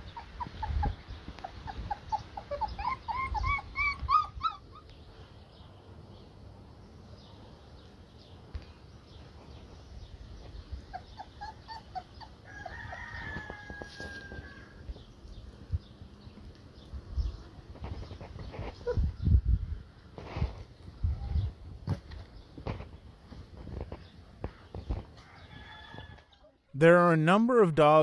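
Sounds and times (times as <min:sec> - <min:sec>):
puppies whimpering and yipping: 0:00.0 - 0:04.9, 0:10.5 - 0:13.4, 0:18.3 - 0:19.2.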